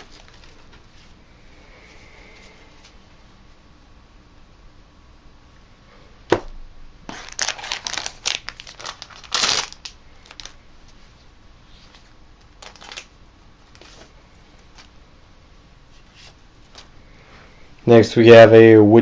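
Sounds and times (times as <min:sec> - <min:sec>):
foil packs crinkling: 0:00.0 - 0:00.9, 0:07.1 - 0:10.6, 0:11.9 - 0:14.9.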